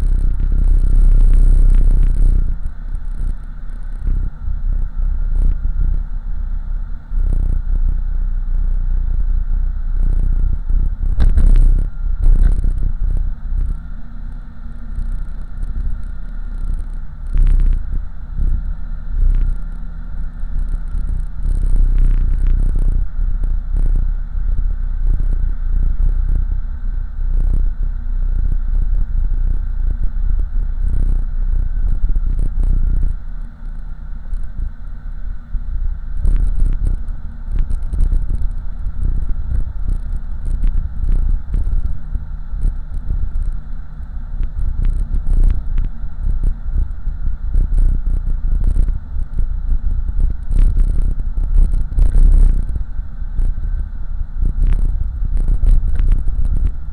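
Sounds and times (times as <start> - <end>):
small rattles and clicks: 0.0 - 4.3, 10.0 - 13.9, 14.9 - 17.9, 19.2 - 19.8, 20.5 - 24.0, 36.2 - 43.7, 44.4 - 56.8
car engine and road rumble: 0.0 - 56.9.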